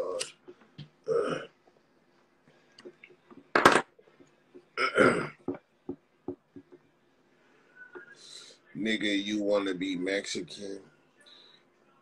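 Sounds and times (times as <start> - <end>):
man burping: 1.0 - 1.6, 4.8 - 5.6.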